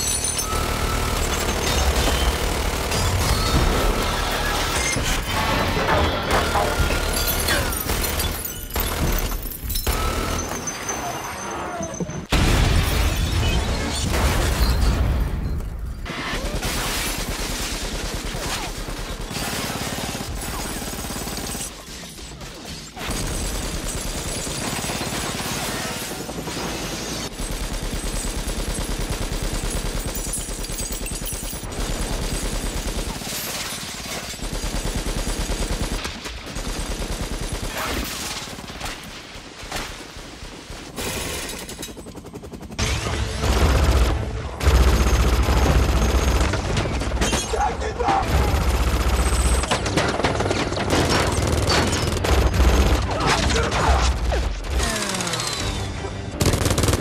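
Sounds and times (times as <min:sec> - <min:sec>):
glass shattering: 0:00.0 - 0:00.6, 0:04.5 - 0:15.8
rapid minigun fire: 0:00.0 - 0:10.6, 0:16.1 - 0:47.2, 0:48.2 - 0:57.0.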